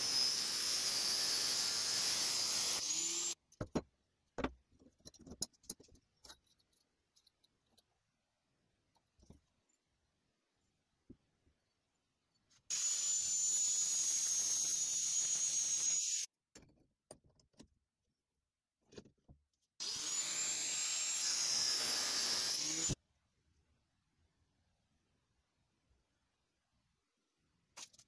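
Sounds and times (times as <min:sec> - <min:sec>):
angle grinder cutting steel: 0:00.0 - 0:03.4, 0:12.7 - 0:16.3, 0:19.8 - 0:23.0.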